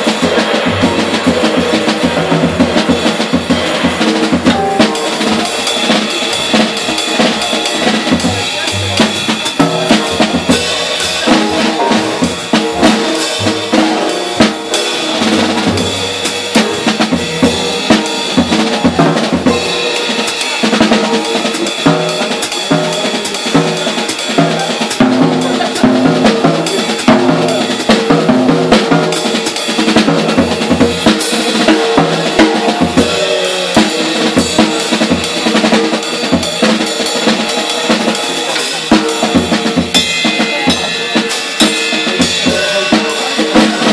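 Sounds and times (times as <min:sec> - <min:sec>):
jazz drum kit: 0:00.0 - 0:43.9
upright double bass: 0:08.1 - 0:18.0.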